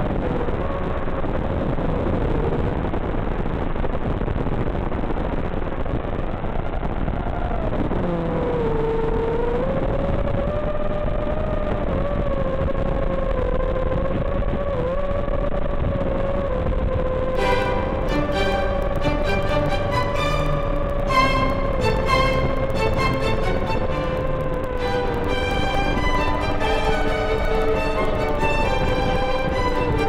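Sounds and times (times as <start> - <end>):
music: 17.4 - 30.0.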